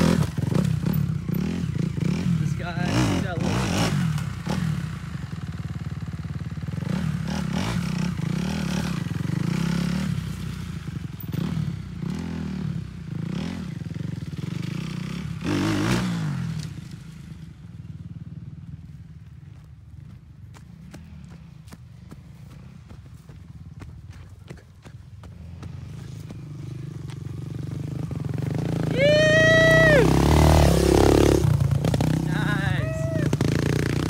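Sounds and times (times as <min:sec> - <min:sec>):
small motorcycle engine revving: 0:00.0 - 0:17.7, 0:25.2 - 0:34.0.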